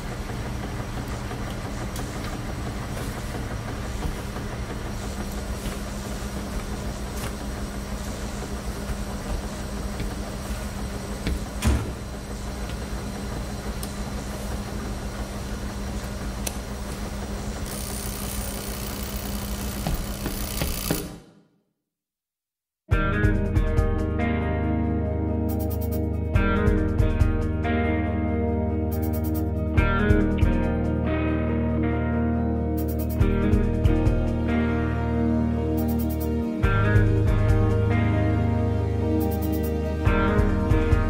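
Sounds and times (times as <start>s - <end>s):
washing machines rumbling: 0.0s - 21.3s, 32.8s - 41.0s.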